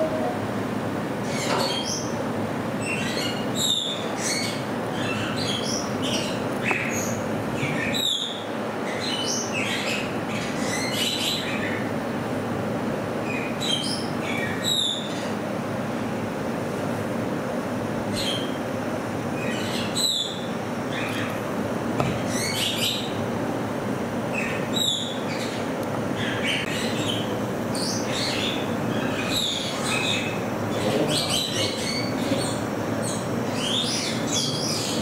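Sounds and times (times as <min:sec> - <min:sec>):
steady background noise: 0:00.0 - 0:35.0
rodents squeaking and chirping: 0:02.8 - 0:11.8, 0:24.3 - 0:35.0.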